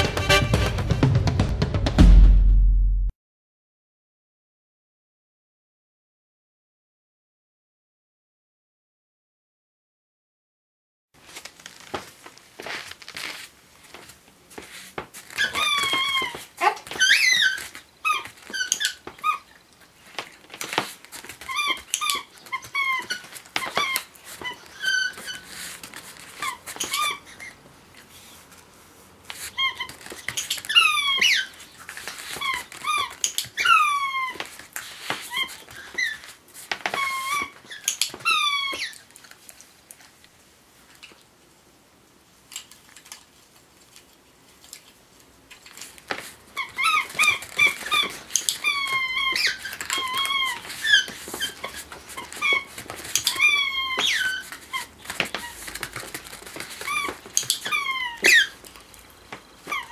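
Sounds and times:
rubber squeaky toy squeaking: 15.2s - 19.5s, 20.7s - 27.6s, 29.4s - 39.1s, 46.5s - 58.6s, 59.6s - 59.9s.

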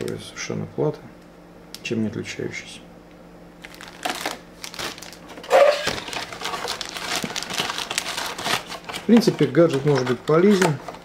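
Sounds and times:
plastic bags crinkling: 3.6s - 11.0s.

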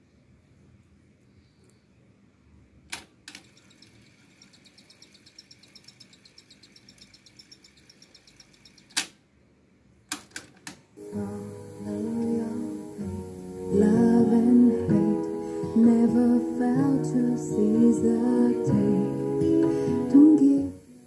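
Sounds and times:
tape winding with ticking: 3.3s - 9.1s
faint steady whine: 11.0s - 21.0s.

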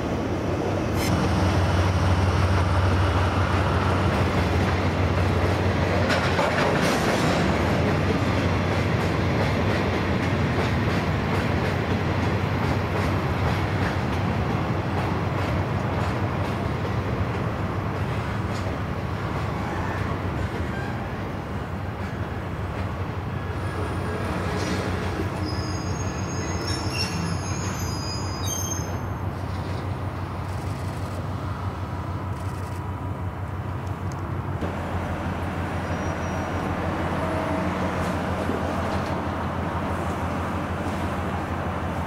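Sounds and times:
train rumbling on tracks: 0.0s - 42.0s
high-pitched wheel squeals: 25.4s - 29.2s, 35.8s - 36.6s.

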